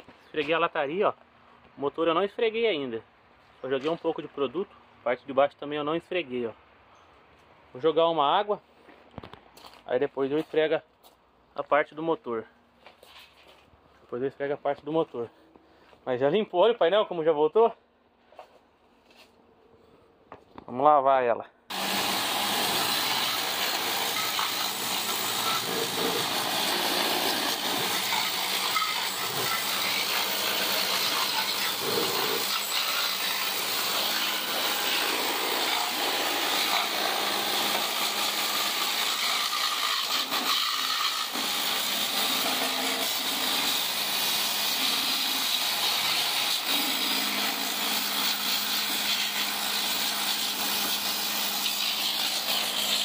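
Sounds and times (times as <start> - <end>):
water jet spraying: 21.7 - 53.0.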